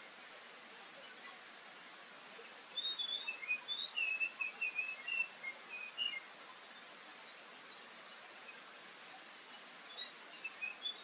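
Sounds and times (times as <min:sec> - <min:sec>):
faint hiss: 0:00.0 - 0:11.0
bird whistling song: 0:02.8 - 0:06.2, 0:09.9 - 0:11.0.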